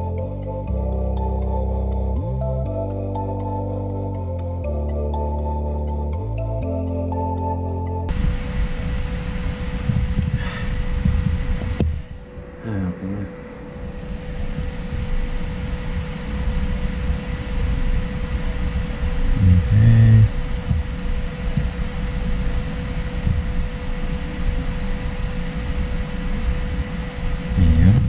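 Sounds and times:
fan humming: 0.0s - 28.0s
low rumble: 0.0s - 28.0s
short low-pitched sound: 17.1s - 21.8s.

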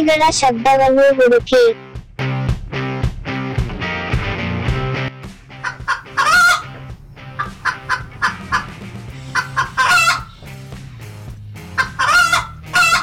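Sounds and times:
chickens clucking: 5.6s - 10.6s, 11.7s - 13.0s.

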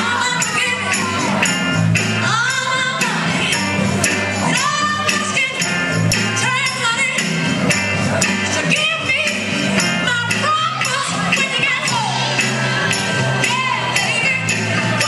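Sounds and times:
singing voices: 0.0s - 15.0s
upbeat oldies dance music: 0.0s - 15.0s.

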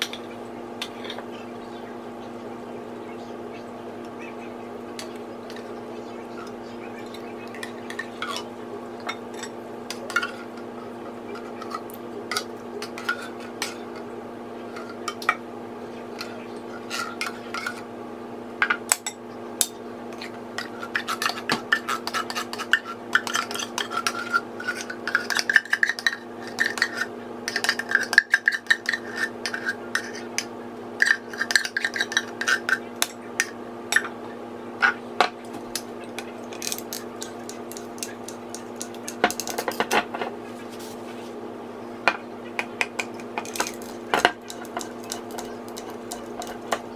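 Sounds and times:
metal spoon clinking and scraping: 6.4s - 10.7s, 11.3s - 14.0s, 19.0s - 34.1s, 35.7s - 40.3s, 42.9s - 46.9s.

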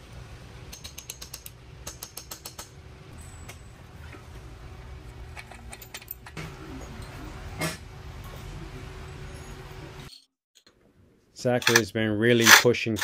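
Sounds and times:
small metal tool clicks: 0.7s - 2.7s
ratcheting wrench clicking: 11.6s - 11.8s, 12.4s - 13.0s.

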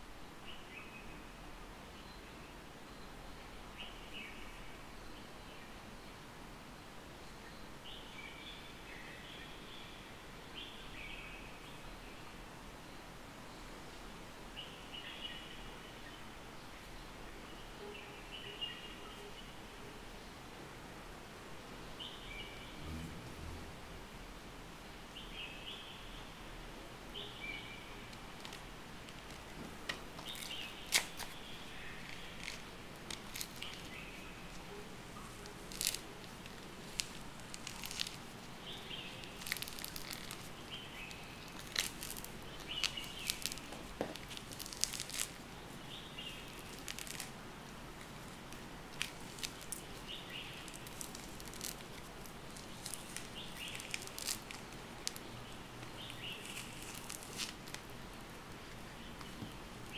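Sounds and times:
orange peel tearing: 28.1s - 34.6s, 35.3s - 45.4s, 46.2s - 55.3s, 55.9s - 59.9s
birds chirping: 52.5s - 57.4s.

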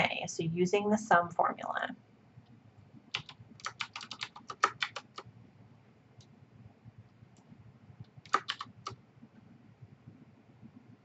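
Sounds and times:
computer keyboard typing: 3.1s - 5.3s, 8.0s - 9.0s.

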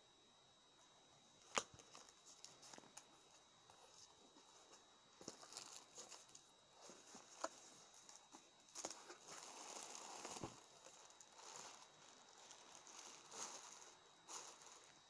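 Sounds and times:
cardboard and plastic rustling: 3.7s - 15.0s.

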